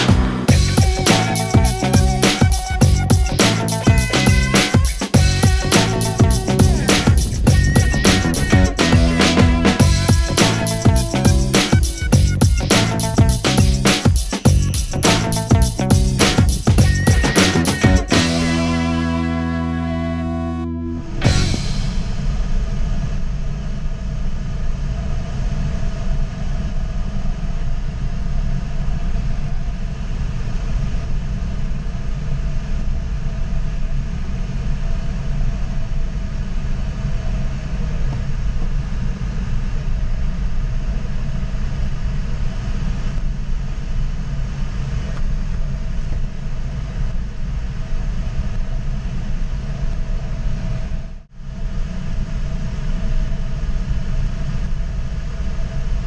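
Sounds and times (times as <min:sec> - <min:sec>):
airflow rumble in cockpit: 0:00.0 - 0:50.2
faint whistling tones: 0:00.5 - 0:05.0, 0:05.8 - 0:09.0.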